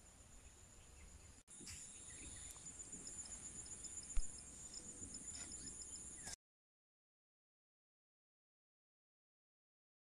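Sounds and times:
high-pitched insect chorus: 0.0s - 6.4s
faint repeated chirp: 0.1s - 6.4s.

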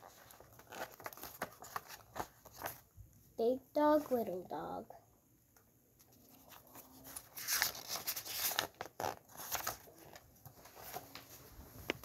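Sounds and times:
paper pages rustling: 0.0s - 2.9s, 6.0s - 12.0s.

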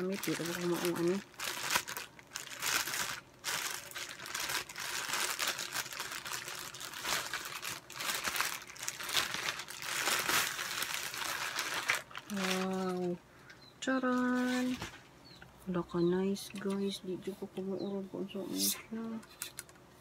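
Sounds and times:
plastic bag crinkling: 0.0s - 13.2s, 14.0s - 15.1s.

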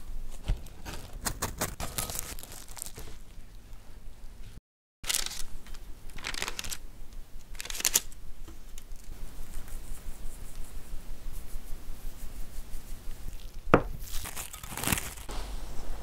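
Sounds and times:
paper rustling: 0.3s - 3.3s, 5.0s - 6.8s, 7.5s - 9.8s, 14.0s - 15.9s.

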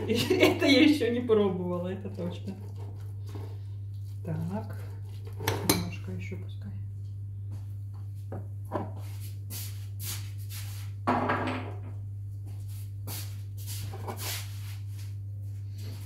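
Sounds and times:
steady low hum: 0.0s - 16.0s
shuffling footsteps: 12.3s - 16.0s.

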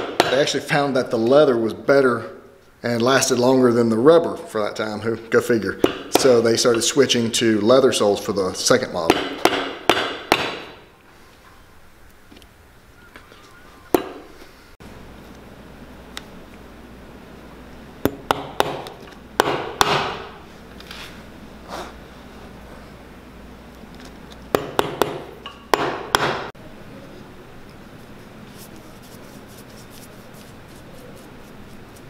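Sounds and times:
hammer striking nails into leather: 9.1s - 10.8s, 18.1s - 20.3s, 24.6s - 26.5s.

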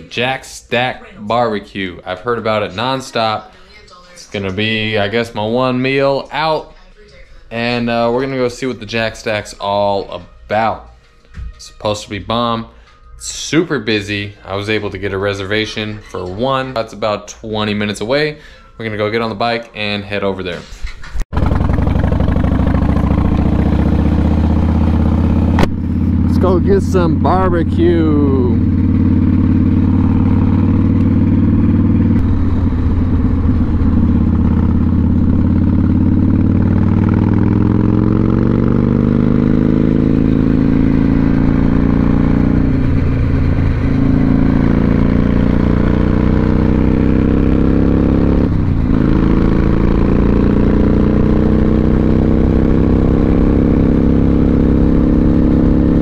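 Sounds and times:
motorcycle engine accelerating: 21.2s - 56.0s
wind and road noise: 21.4s - 27.6s, 28.6s - 39.0s.

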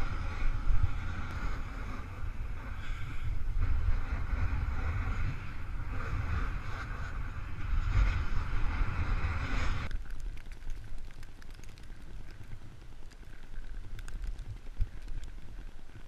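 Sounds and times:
snowboard scraping on snow: 0.0s - 9.9s
wind buffeting microphone: 0.0s - 10.0s.

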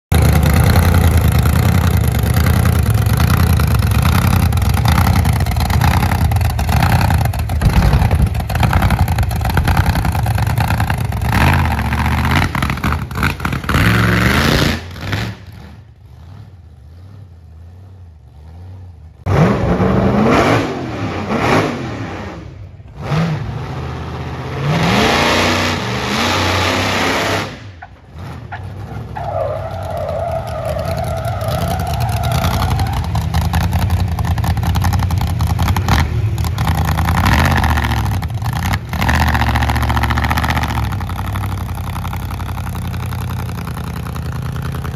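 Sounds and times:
engine idling: 0.1s - 13.6s, 30.5s - 44.9s
engine running hard: 0.1s - 27.8s
engine revving: 0.1s - 28.8s, 30.5s - 44.9s.

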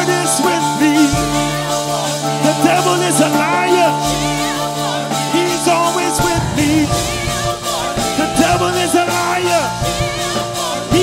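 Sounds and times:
choir singing worship music: 0.0s - 11.0s
keyboard chords and bass: 6.0s - 10.2s.

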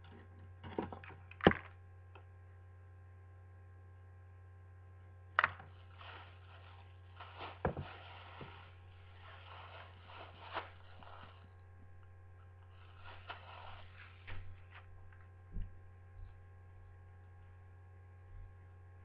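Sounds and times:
steady low hum: 0.0s - 19.0s
soft rustling: 5.8s - 11.5s.

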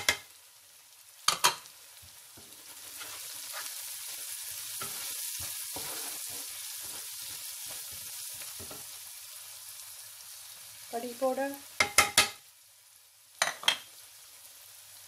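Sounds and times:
masala sizzling in a pot: 0.0s - 15.0s
wooden spoon scraping: 2.4s - 3.9s, 4.7s - 8.9s.

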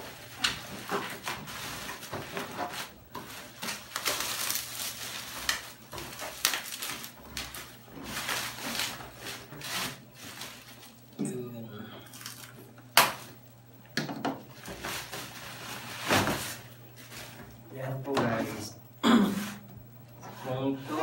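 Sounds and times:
bubble wrap crinkling: 0.0s - 11.2s, 12.0s - 13.5s, 14.5s - 17.6s.

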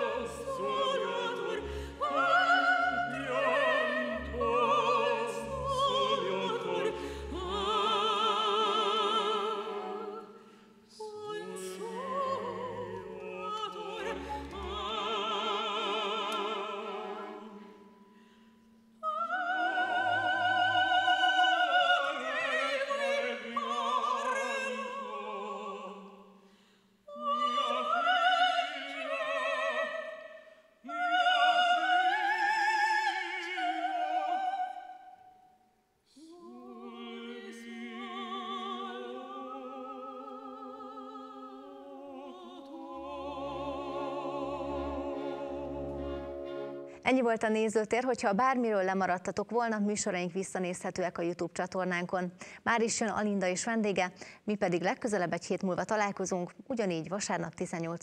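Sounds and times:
operatic singing: 0.0s - 18.2s, 19.0s - 26.4s, 27.1s - 35.2s, 36.1s - 47.5s.

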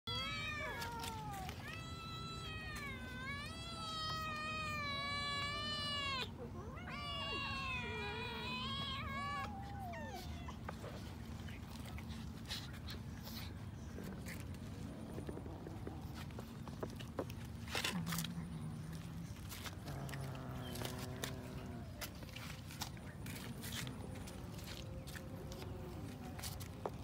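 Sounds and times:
cats meowing: 0.1s - 12.2s, 17.6s - 26.7s.

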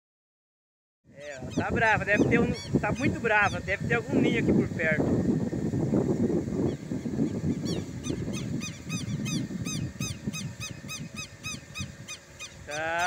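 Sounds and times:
low rumbling noise: 1.1s - 13.0s
bird alarm call high notes: 7.6s - 13.0s.

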